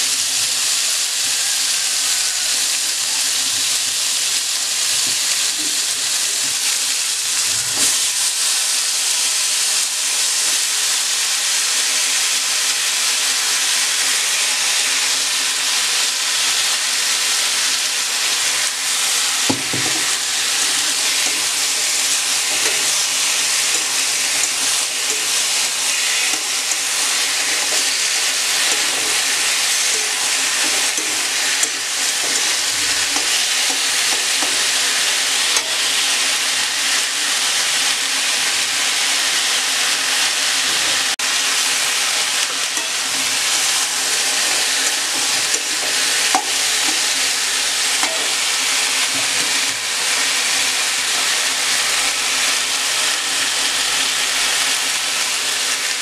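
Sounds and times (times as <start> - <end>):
food sizzling in a wok: 0.0 - 56.0
spatula stirring and scraping: 18.8 - 36.1, 42.2 - 49.8.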